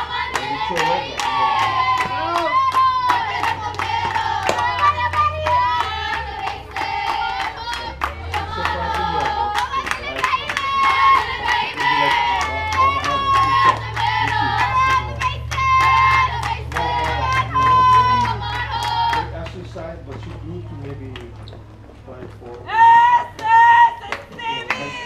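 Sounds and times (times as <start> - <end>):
children chanting a cheer: 0.0 - 19.4
hand claps: 0.0 - 20.4.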